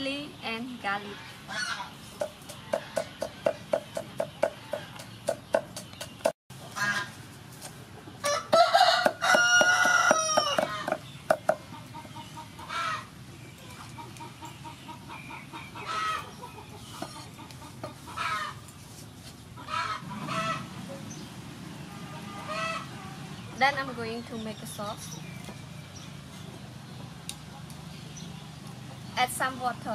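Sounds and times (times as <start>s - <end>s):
chickens clucking: 1.0s - 23.7s
cleaver chopping on wooden block: 2.2s - 6.3s, 9.0s - 11.6s
rooster crowing: 8.2s - 11.0s.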